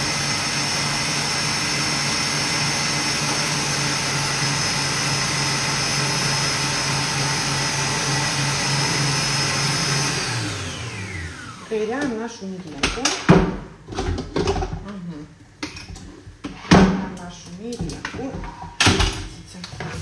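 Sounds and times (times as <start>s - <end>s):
stand mixer motor whining: 0.0s - 11.7s.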